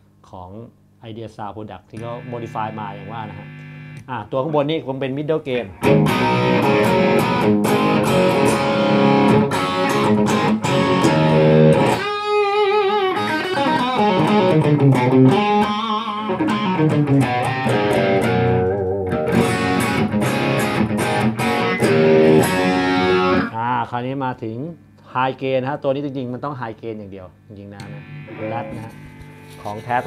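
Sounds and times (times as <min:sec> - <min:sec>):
distorted electric guitar: 0:02.0 - 0:04.1, 0:05.6 - 0:23.6, 0:27.8 - 0:30.0.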